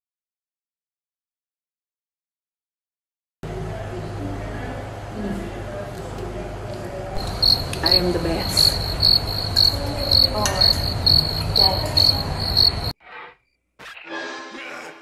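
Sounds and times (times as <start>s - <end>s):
cricket-like chirping: 7.2s - 13.0s.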